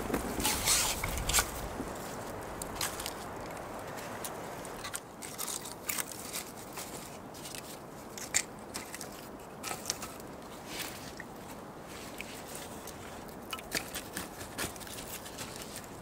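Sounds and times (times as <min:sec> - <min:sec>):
firewood logs clattering: 0:00.0 - 0:06.1
bark and twigs crackling: 0:00.0 - 0:10.5.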